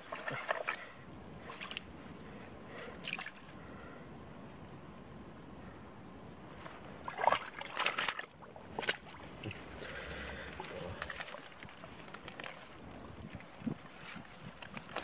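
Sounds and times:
water sloshing: 0:00.0 - 0:01.9, 0:07.0 - 0:15.0
hands splashing in muddy water: 0:07.0 - 0:09.7.

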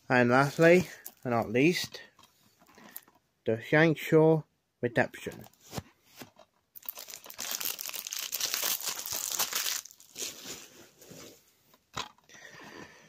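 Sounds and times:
plastic case crinkling: 0:06.2 - 0:10.6.

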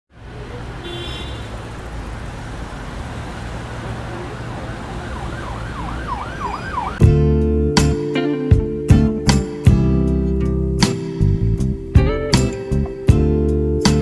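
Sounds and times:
city traffic rumble: 0:00.1 - 0:14.0
emergency siren yelping: 0:04.4 - 0:07.0.

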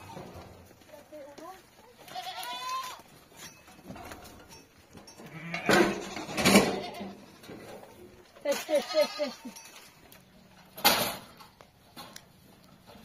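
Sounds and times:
sheep or goats bleating: 0:00.0 - 0:00.4, 0:01.8 - 0:03.1, 0:05.2 - 0:07.4, 0:08.4 - 0:09.6.

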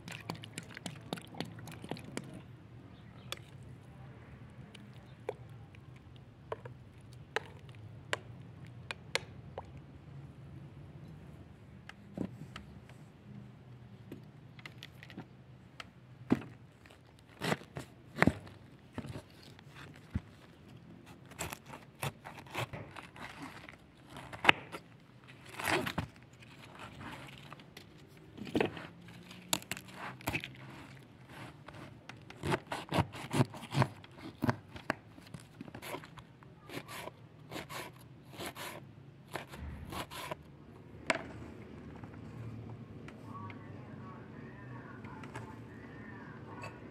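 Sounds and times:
knife slicing cabbage: 0:21.1 - 0:27.3, 0:29.7 - 0:34.7, 0:35.6 - 0:36.1, 0:36.7 - 0:40.4.

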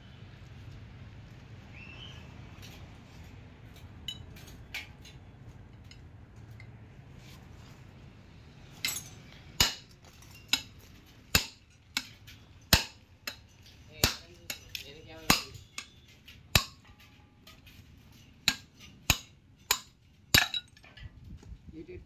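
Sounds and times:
hammer striking metal: 0:08.8 - 0:20.8.

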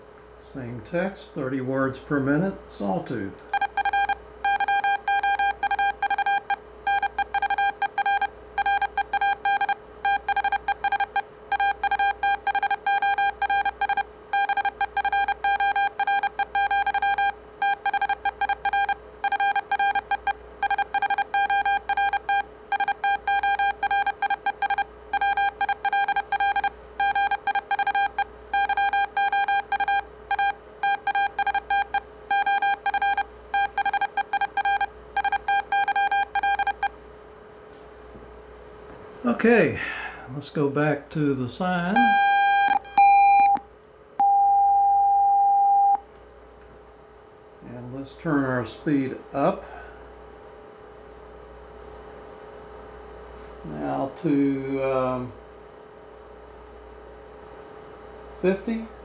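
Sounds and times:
morse code tone: 0:03.5 - 0:36.9, 0:42.0 - 0:43.6, 0:44.2 - 0:46.0.

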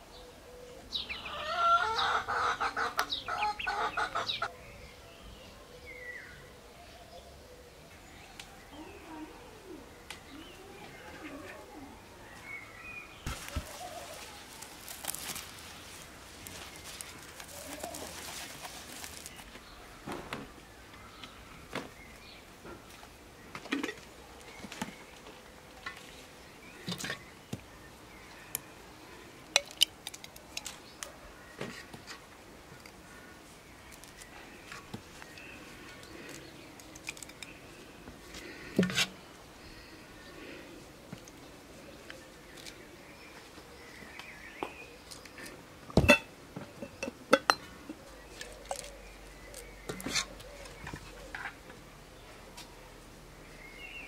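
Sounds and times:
soft squishing of pulp: 0:13.2 - 0:19.6
glass jars and spoon clinking: 0:46.0 - 0:47.7.

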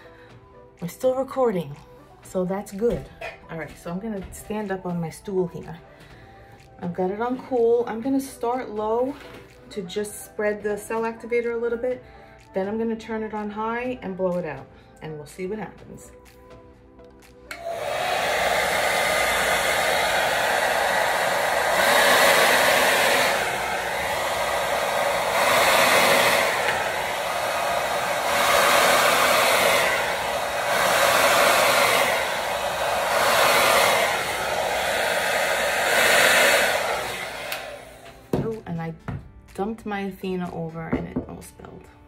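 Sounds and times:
hair dryer blowing air: 0:17.4 - 0:39.0.

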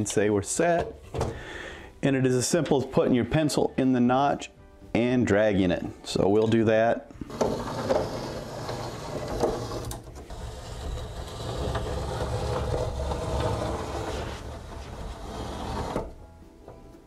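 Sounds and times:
metal square scraping along wood: 0:07.3 - 0:16.2.

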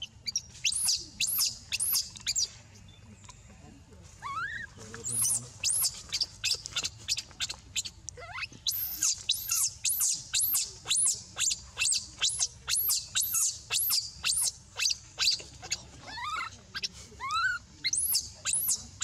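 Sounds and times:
baby monkey screaming: 0:04.2 - 0:16.6, 0:17.2 - 0:18.8.

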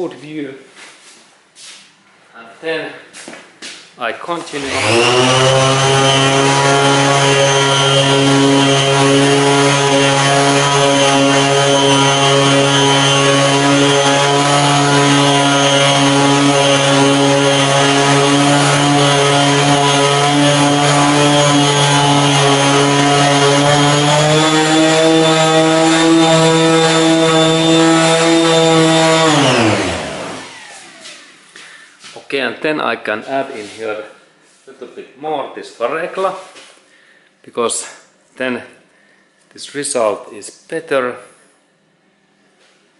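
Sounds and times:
orbital sander motor whine: 0:04.6 - 0:31.4.

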